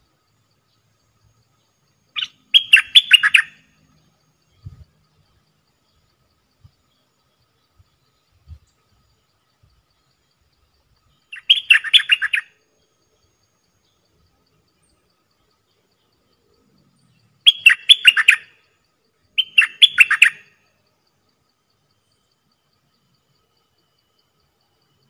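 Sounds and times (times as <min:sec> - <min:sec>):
bird singing sharp notes: 0:02.2 - 0:03.8, 0:11.3 - 0:12.5, 0:17.4 - 0:18.5, 0:19.4 - 0:20.6.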